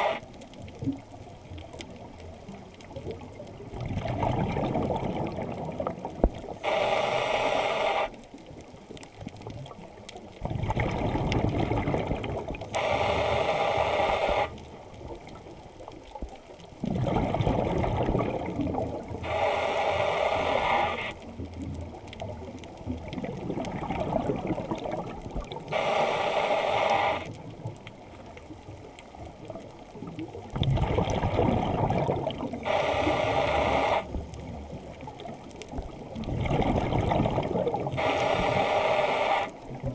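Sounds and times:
hissing inhale through regulator: 0.0 - 0.2, 6.4 - 8.2, 12.7 - 14.7, 19.2 - 21.2, 25.7 - 27.4, 32.6 - 34.2, 37.9 - 39.7
bubbling exhale: 3.8 - 8.1, 10.4 - 14.6, 16.8 - 21.2, 30.6 - 34.2, 36.2 - 39.9.

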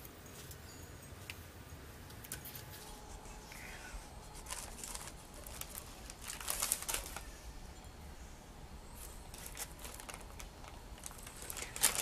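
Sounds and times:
plastic sheet crinkling: 4.3 - 7.4, 9.0 - 12.0.

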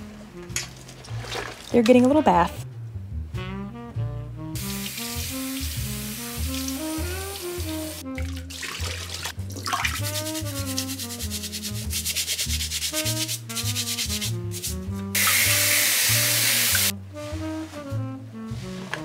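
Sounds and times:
background music: 0.0 - 19.0
tap running water: 4.6 - 11.0, 15.2 - 16.9
brush scrubbing carrots: 8.6 - 14.9.

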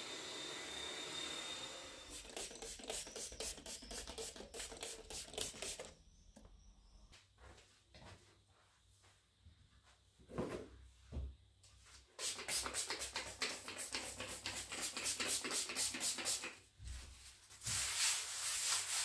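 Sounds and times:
quick rubbing strokes: 2.1 - 5.9.

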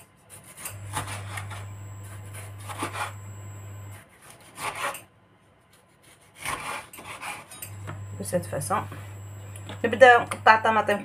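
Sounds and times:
low steady hum: 0.7 - 4.0, 7.7 - 11.0
knife slicing tomatoes on board: 3.9 - 5.1, 5.7 - 7.5.

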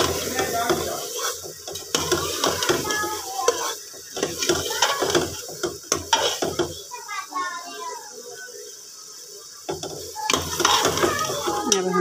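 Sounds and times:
ladle scraping a pot: 0.0 - 6.6, 9.9 - 12.0
food sizzling: 0.0 - 12.0.

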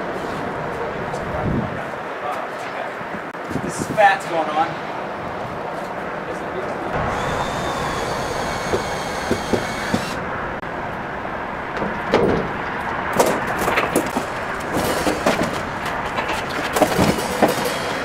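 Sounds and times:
steady background noise: 0.0 - 18.0
footsteps on metal truck floor: 11.7 - 18.0.

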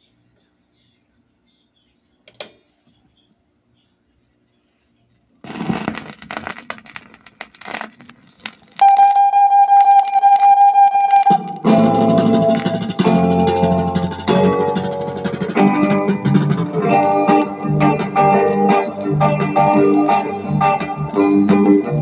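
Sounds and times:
vinyl crackle and pops: 4.5 - 13.6
rock band playing: 11.3 - 22.0.

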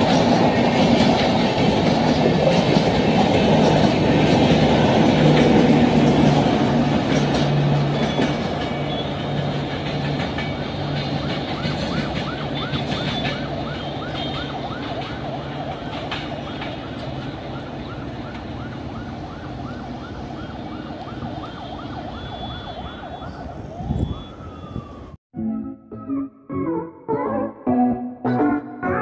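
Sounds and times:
train rumbling: 0.0 - 20.5
siren yelping: 17.4 - 27.8.

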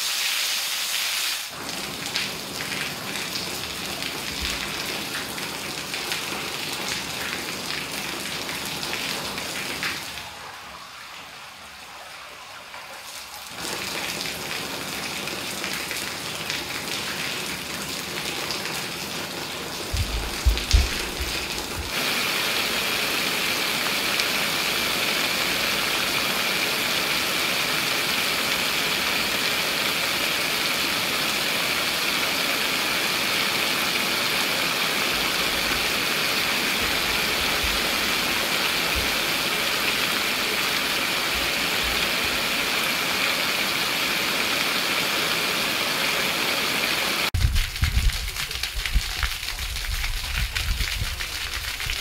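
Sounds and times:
fountain jets spraying and pattering: 19.7 - 52.0
low thumps: 19.9 - 21.9.

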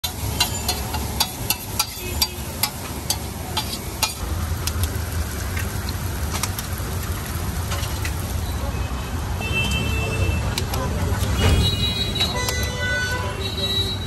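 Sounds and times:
metal spatula clanking on griddle: 0.0 - 4.3
food frying: 0.0 - 9.3.

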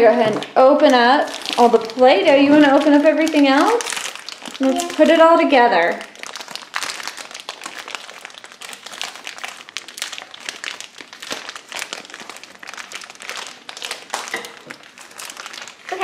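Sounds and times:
plastic packaging crinkling: 0.0 - 16.0.

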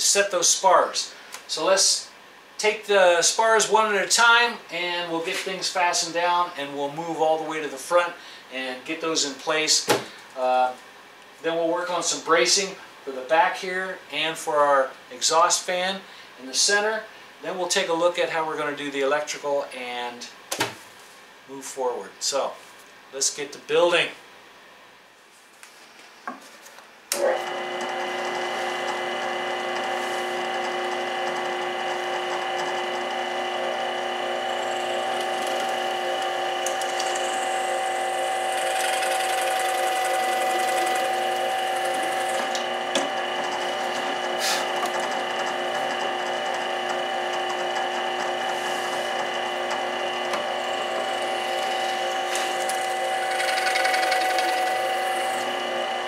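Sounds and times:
drill press whining: 27.1 - 56.0
drill bit boring into wood: 27.2 - 56.0.

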